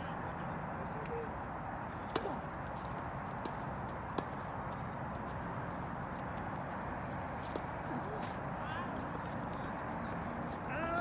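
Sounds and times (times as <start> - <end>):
steady background noise: 0.0 - 11.0
tennis ball struck with racket: 2.0 - 4.5.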